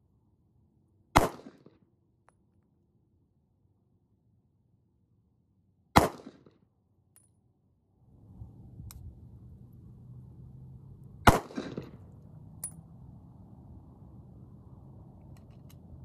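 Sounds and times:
pistol shot with echo: 0:01.2 - 0:01.7, 0:06.0 - 0:06.5, 0:11.3 - 0:12.0.

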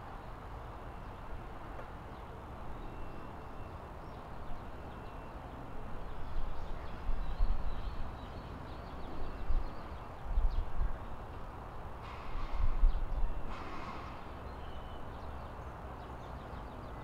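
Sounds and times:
wind buffeting microphone: 0:09.0 - 0:14.3.

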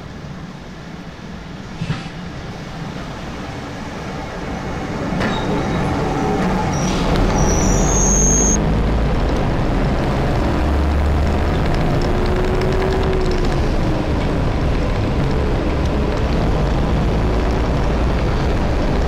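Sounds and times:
diesel railbus arriving: 0:00.0 - 0:19.0
train engine running steadily: 0:00.0 - 0:19.0
brake squeal: 0:02.6 - 0:08.6.

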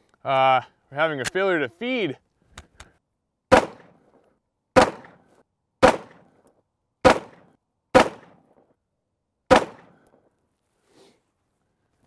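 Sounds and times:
pistol shots with echo: 0:03.5 - 0:04.0, 0:04.8 - 0:05.2, 0:05.8 - 0:06.3, 0:07.0 - 0:08.5, 0:09.5 - 0:10.0.

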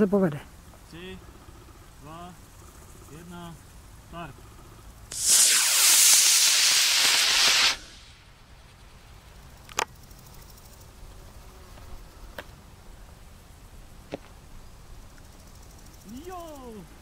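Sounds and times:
rocket motor thrust hiss: 0:05.1 - 0:08.3.

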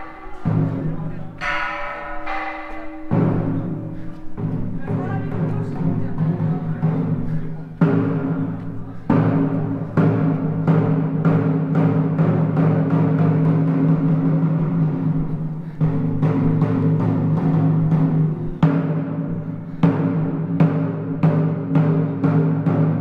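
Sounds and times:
gong strokes ringing: 0:00.0 - 0:05.5.

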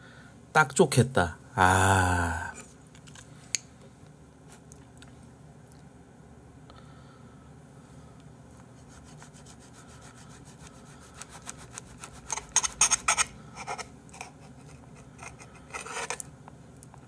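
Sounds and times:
knife sawing through fish: 0:08.8 - 0:13.8
knife scraping on plate: 0:11.2 - 0:16.3.

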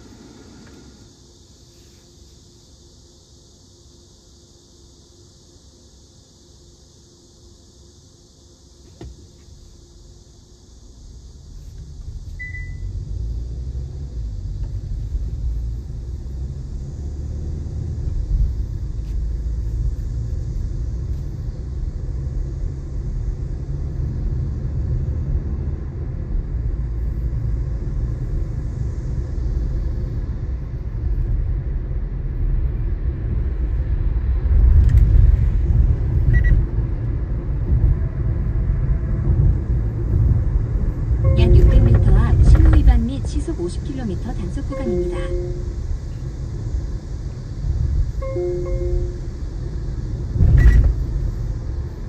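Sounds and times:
car road and engine rumble: 0:00.0 - 0:52.0.

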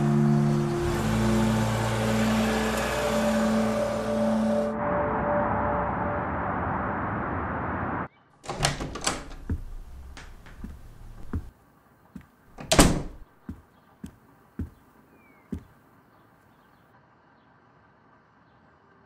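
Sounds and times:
door handle and lock clicks: 0:08.5 - 0:11.5, 0:12.6 - 0:13.2
door shutting with thud: 0:08.5 - 0:11.5, 0:12.6 - 0:13.2
footsteps on hard floor: 0:09.4 - 0:11.5, 0:13.4 - 0:14.8.

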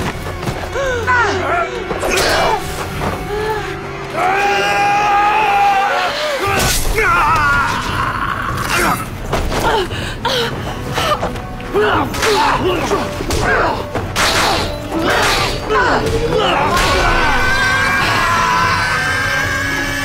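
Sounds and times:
dramatic background music: 0:00.0 - 0:20.0
people crying out and gasping: 0:00.6 - 0:20.0.

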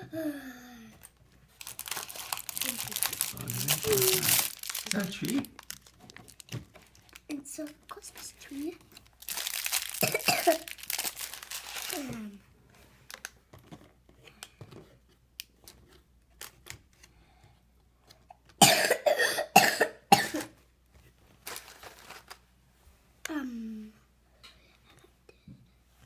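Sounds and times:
person coughing: 0:10.0 - 0:10.7, 0:18.6 - 0:20.5.

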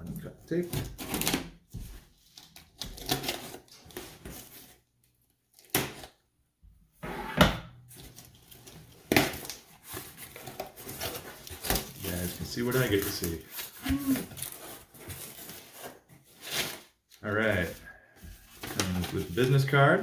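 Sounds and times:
tape and cardboard scraping: 0:07.1 - 0:17.0.

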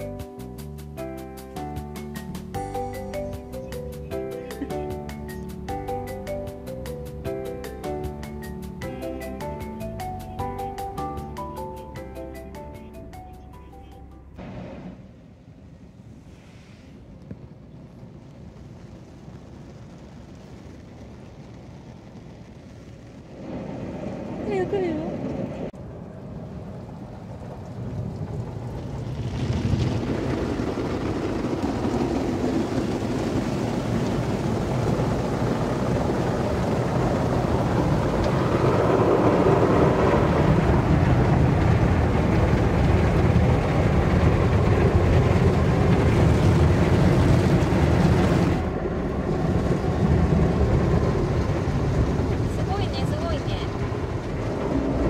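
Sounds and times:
low rumble: 0:01.4 - 0:55.0
water spraying on car roof: 0:14.4 - 0:55.0.

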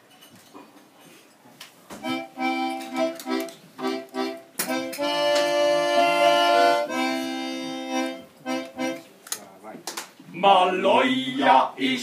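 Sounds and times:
accordion chords: 0:02.0 - 0:09.1.

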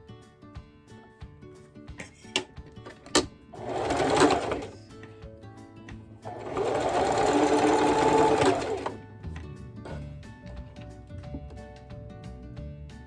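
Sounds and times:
background music: 0:00.0 - 0:13.0
sewing machine stitching: 0:03.1 - 0:04.8, 0:06.2 - 0:09.0.

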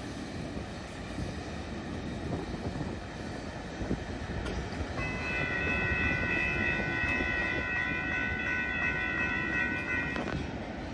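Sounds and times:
crossing warning bell ringing: 0:04.9 - 0:10.6.

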